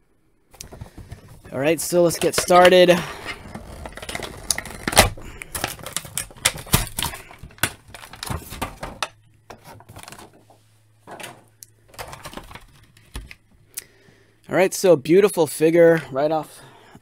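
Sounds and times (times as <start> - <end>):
faint low hum: 0.0 - 17.0
plastic blister crackling: 0.6 - 9.1.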